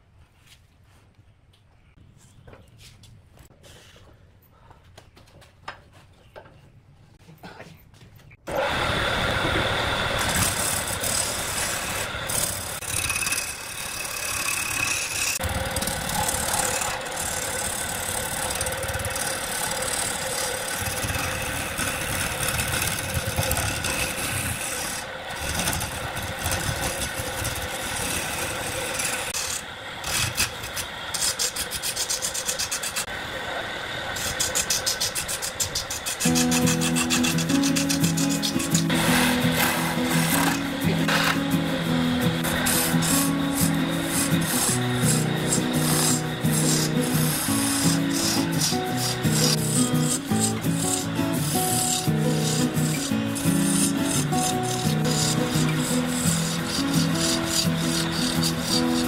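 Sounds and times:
wood lathe spinning: 8.5s - 59.0s
turning tool scraping wood: 9.4s - 33.1s, 34.2s - 59.0s.

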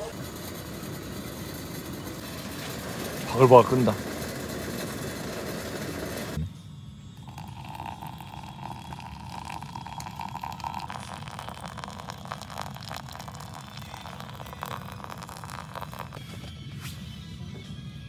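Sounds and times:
hot water pouring onto coffee grounds: 1.2s - 6.4s, 7.2s - 16.4s.

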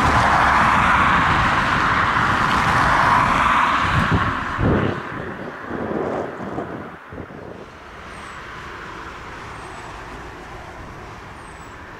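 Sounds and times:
wind buffeting microphone: 0.0s - 8.3s.

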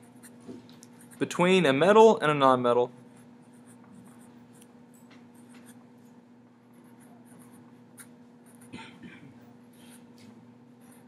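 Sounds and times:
steady low hum: 0.0s - 11.0s
marker scratching on paper: 6.7s - 8.7s.

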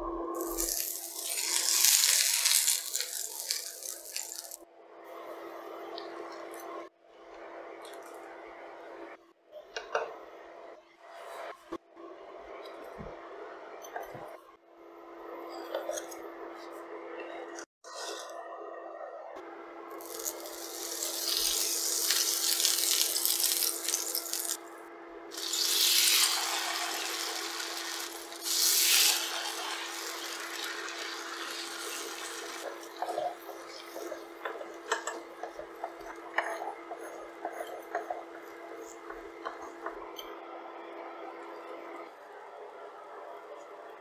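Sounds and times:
food sizzling on griddle: 0.4s - 4.6s, 20.0s - 24.6s, 25.3s - 33.4s
spatula scraping and tapping: 32.6s - 40.3s.

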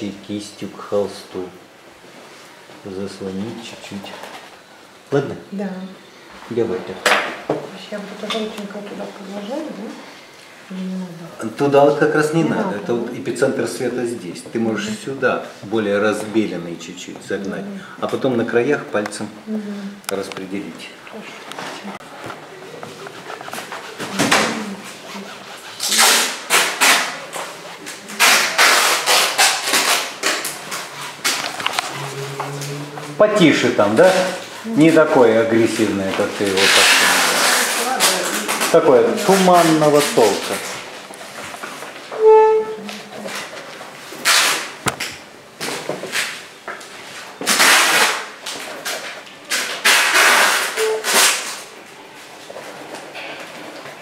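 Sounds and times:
fingers swishing paint on canvas: 22.7s - 30.1s
painting tools scraping thick paint: 22.8s - 32.9s, 35.7s - 40.7s.

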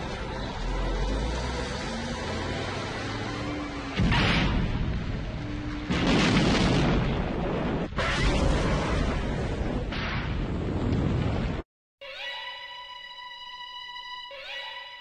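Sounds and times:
rumble after explosion: 4.0s - 11.6s
tanker trucks exploding: 4.0s - 11.6s.

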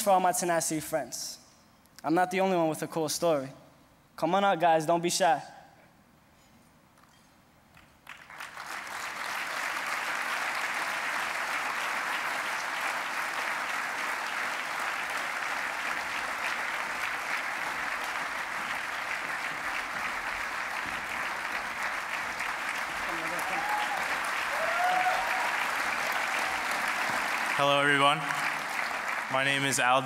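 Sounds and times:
audience applause: 8.0s - 30.0s.

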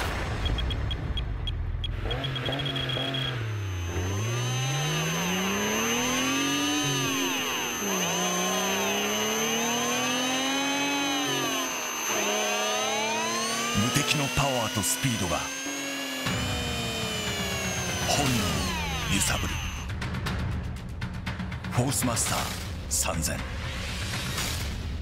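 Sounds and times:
short electronic beeps: 0.4s - 9.1s
reel motor whirring: 2.1s - 19.9s.

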